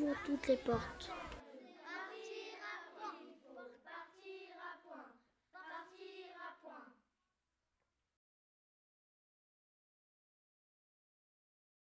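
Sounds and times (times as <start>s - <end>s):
children singing faintly: 0.0s - 7.2s.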